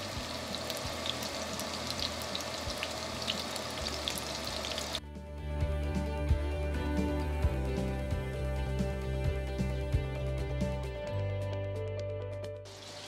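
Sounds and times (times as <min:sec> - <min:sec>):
patties sizzling in frying pan: 0:00.0 - 0:05.0, 0:12.7 - 0:13.0
background music: 0:00.0 - 0:13.0.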